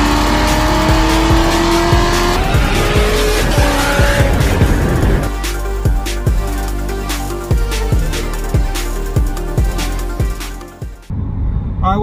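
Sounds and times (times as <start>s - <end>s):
car engine accelerating: 0.0s - 6.4s
music with steady beat: 0.0s - 11.1s.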